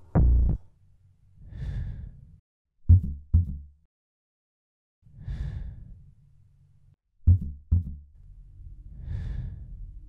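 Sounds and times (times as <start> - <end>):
heavy breathing: 1.4 - 2.4, 5.1 - 6.2, 8.8 - 10.0.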